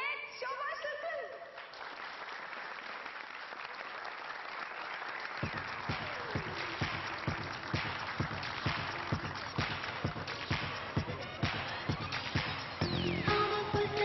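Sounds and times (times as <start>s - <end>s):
audience applauding: 1.6s - 14.0s
music with thumping beat: 5.4s - 14.0s.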